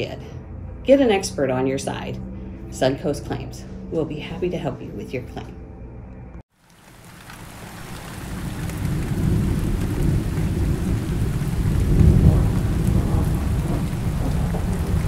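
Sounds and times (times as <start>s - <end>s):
steady rain: 6.5s - 15.0s
low rumbling thunder: 7.5s - 15.0s.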